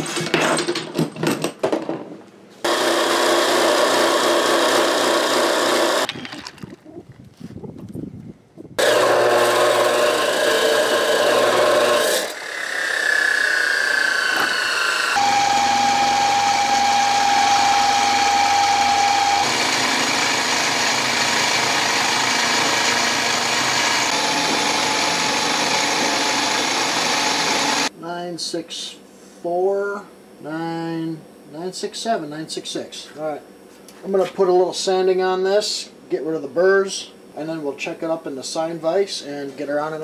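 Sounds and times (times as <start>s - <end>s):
chop saw cutting metal: 2.6s - 6.2s, 8.8s - 27.9s
milling machine cutting metal: 2.7s - 6.1s, 8.8s - 27.9s.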